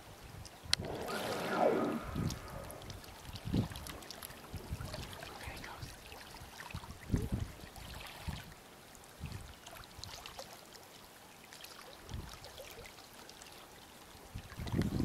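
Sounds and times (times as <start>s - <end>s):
whale blow whoosh: 0.8s - 3.3s.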